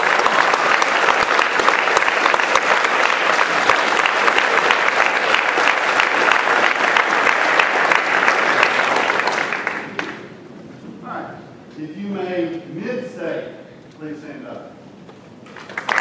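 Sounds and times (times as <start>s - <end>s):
audience applauding: 0.0s - 10.3s, 15.5s - 16.0s.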